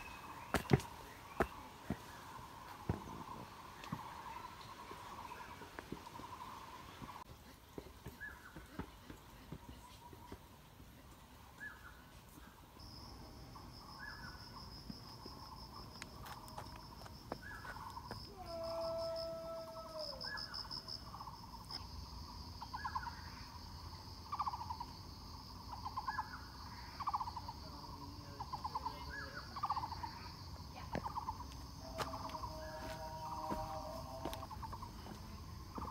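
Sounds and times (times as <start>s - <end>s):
insects trilling: 12.7s - 35.9s.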